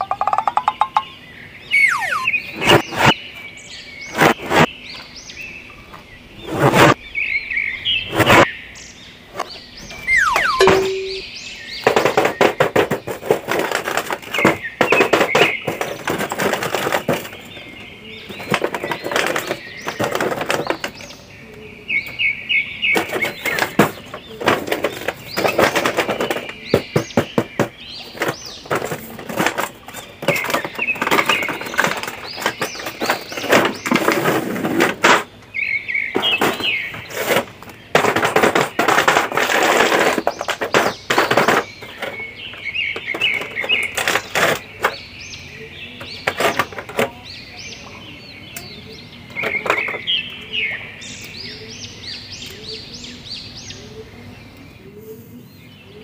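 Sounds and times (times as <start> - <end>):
short high squeaks: 1.7 - 2.7, 10.0 - 11.2
plastic and cardboard crinkling: 11.8 - 21.2, 23.0 - 35.4, 36.2 - 45.0.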